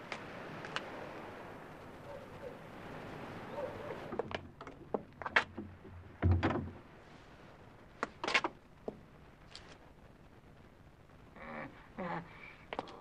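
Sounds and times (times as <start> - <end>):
wooden door knocks and clicks: 5.4 - 6.8
door dull thud: 6.2 - 6.8.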